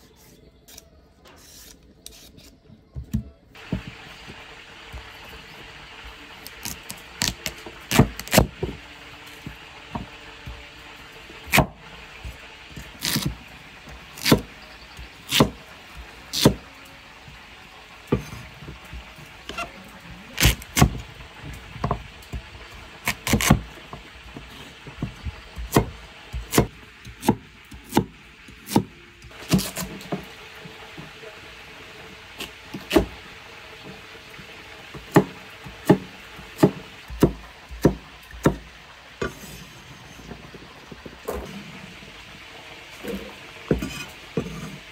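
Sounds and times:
cleaver chopping on wooden block: 14.2 - 14.5.

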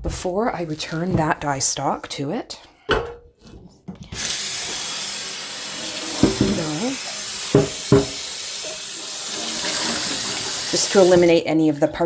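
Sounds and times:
water running from faucet: 4.2 - 11.4.

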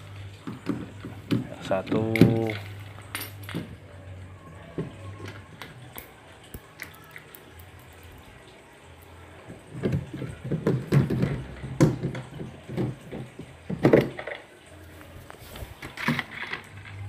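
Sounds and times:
plastic cover knocking and rattling: 0.4 - 2.7, 9.5 - 14.4.

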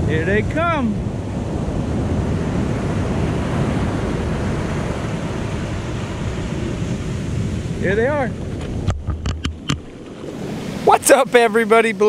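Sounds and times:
wind on microphone: 0.0 - 11.0
ocean surf washing up beach: 0.0 - 12.0.

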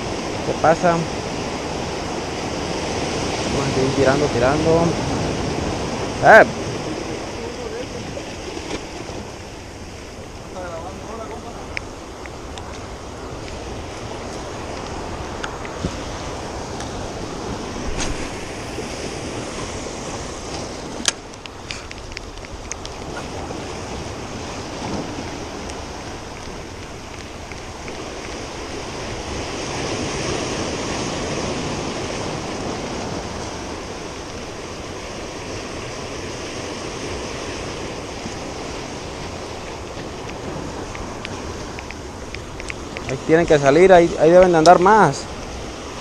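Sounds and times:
surf washing over rocky shore: 0.0 - 46.0
wind on microphone: 0.0 - 46.0
sharp clicks: 21.0 - 23.1, 40.2 - 43.2.

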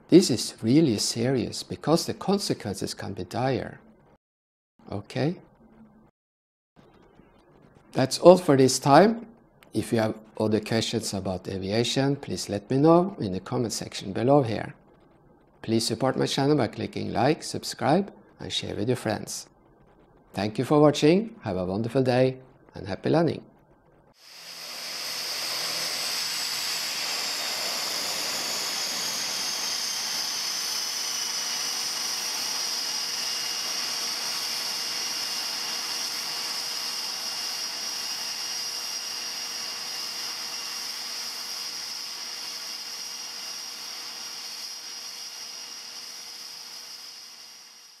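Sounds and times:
aircraft turbine engine whine: 24.2 - 48.0.

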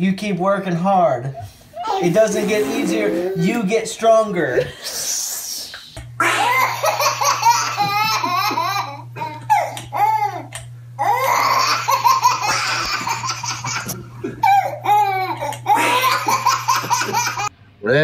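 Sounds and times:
baby laughing: 1.2 - 3.6, 6.2 - 17.5.

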